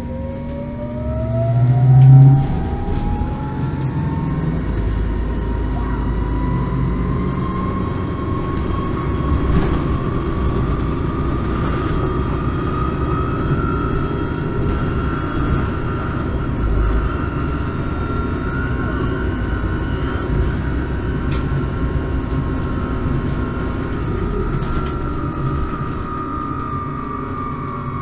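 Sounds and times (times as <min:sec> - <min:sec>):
electric drive whine: 0:00.0 - 0:28.0
low rumble: 0:00.0 - 0:28.0.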